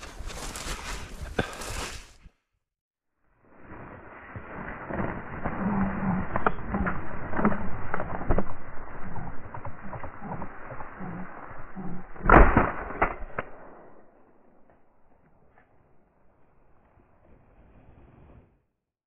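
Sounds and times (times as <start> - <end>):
shotgun shot: 12.2 - 14.2.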